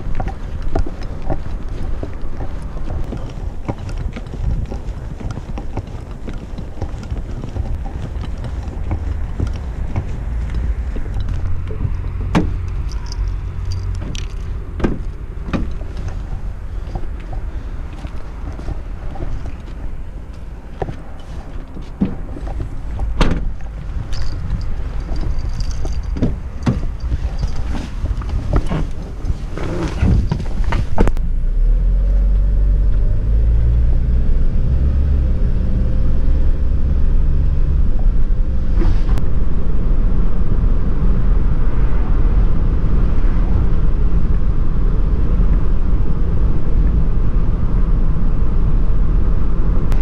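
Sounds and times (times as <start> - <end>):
wind buffeting microphone: 0.0 - 31.2, 33.8 - 50.0
van tailgate shutting: 23.1 - 23.6.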